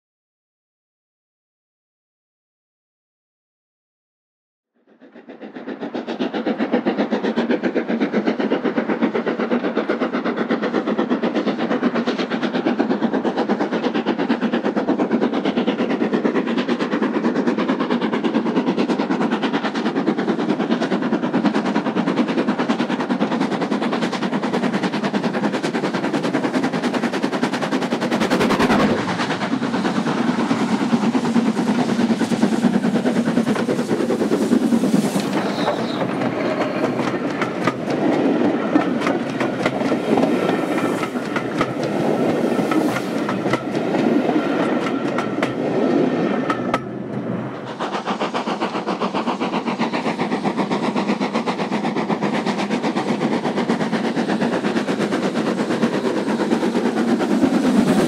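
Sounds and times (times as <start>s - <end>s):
steam locomotive exhaust beats: 4.9s - 58.0s
rush of noise: 27.8s - 48.5s.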